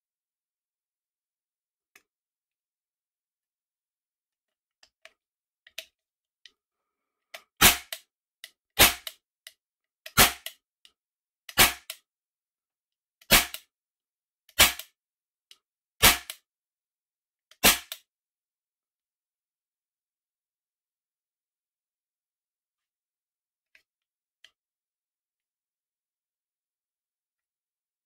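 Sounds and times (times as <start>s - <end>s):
toy cap gun bangs: 7.6s - 8.0s, 8.8s - 9.2s, 10.1s - 10.6s, 11.5s - 12.0s, 13.3s - 13.7s, 14.6s - 14.9s, 16.0s - 16.4s, 17.6s - 18.0s.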